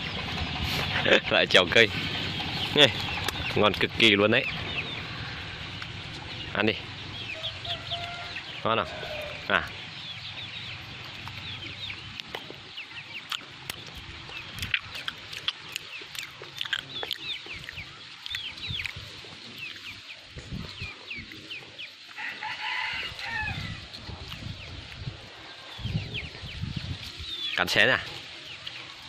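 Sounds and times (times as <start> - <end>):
long full bird call: 0.0 - 14.9
birds chirping: 0.0 - 29.0.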